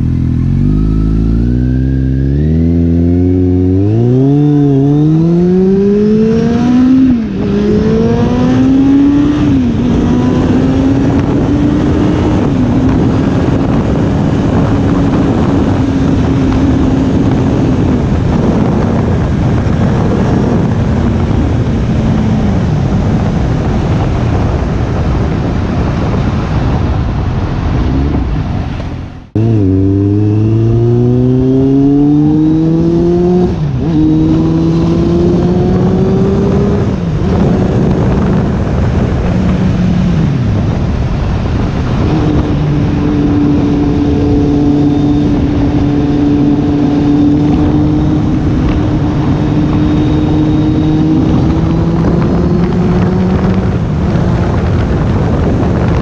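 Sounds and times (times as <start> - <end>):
motorcycle engine revving: 0.0 - 56.0
wind noise: 0.0 - 56.0.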